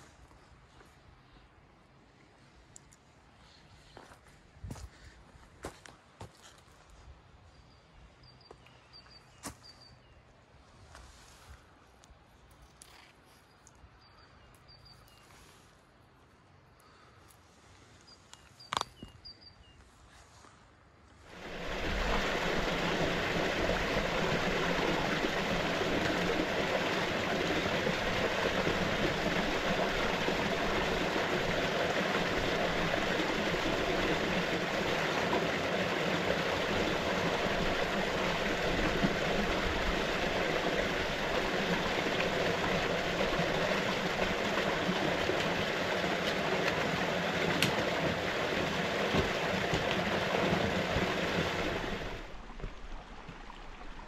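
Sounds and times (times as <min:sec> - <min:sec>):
water splashing into pool: 0:21.3 - 0:54.0.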